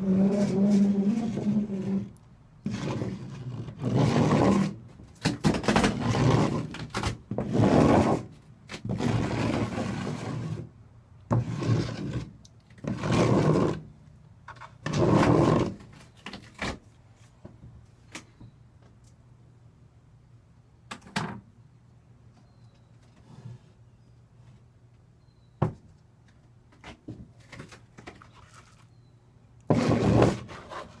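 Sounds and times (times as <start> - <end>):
trowel scraping adhesive: 0.0 - 4.8, 5.4 - 10.7, 11.4 - 13.9, 29.7 - 31.0.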